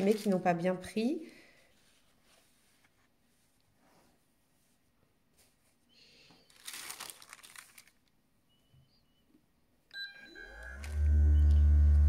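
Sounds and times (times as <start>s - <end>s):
parchment paper crinkling: 0.0s - 3.6s, 5.4s - 8.2s.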